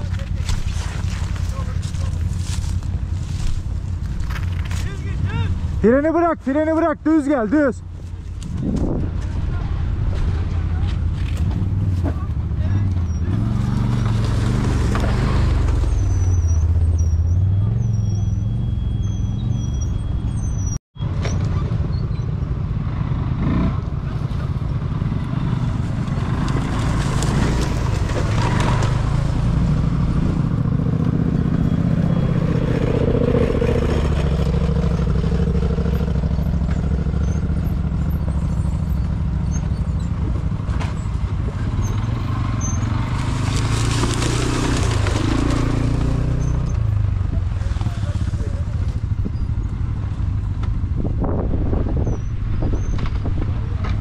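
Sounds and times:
atv engine revving: 8.7s - 20.4s, 21.2s - 54.0s.

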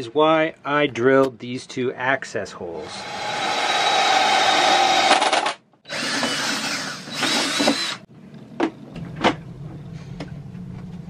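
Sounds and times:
cordless drill cutting plastic: 3.0s - 8.1s.

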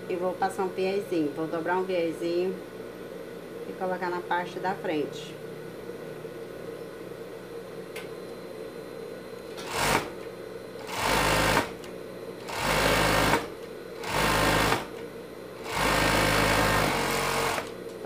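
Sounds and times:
overlock machine stitching: 9.6s - 10.1s, 10.8s - 11.8s, 12.4s - 14.9s, 15.6s - 17.8s.

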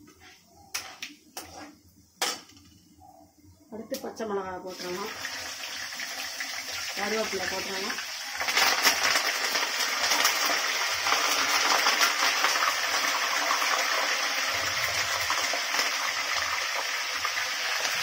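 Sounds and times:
leaves frying in hot oil: 4.6s - 18.0s.

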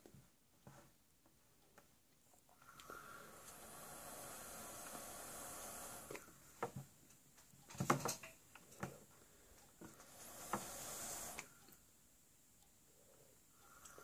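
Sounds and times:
short hiss of air drawn: 3.1s - 6.2s, 10.1s - 11.6s
soft clicks and knocks: 6.2s - 10.0s.

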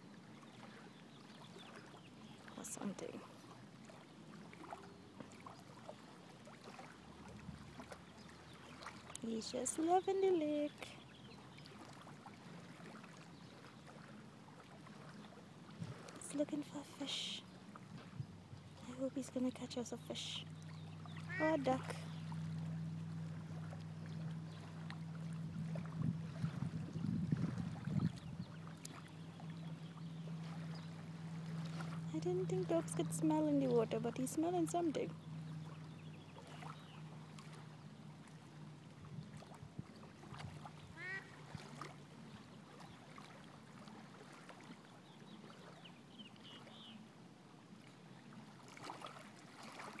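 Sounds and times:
steady low hum: 0.0s - 44.3s
dog wading in water: 0.0s - 46.9s, 47.6s - 50.0s
bird honking call: 20.6s - 23.2s, 40.8s - 41.5s.

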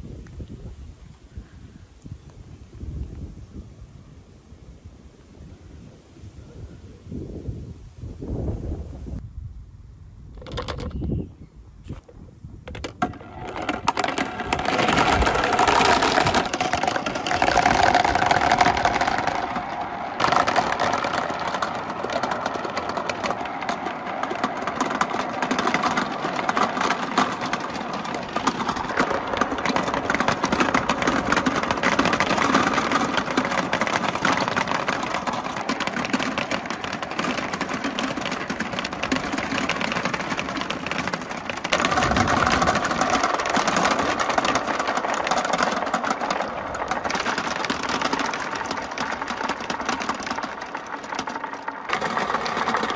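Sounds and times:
marbles rolling and clattering: 10.3s - 11.2s, 11.9s - 52.9s.

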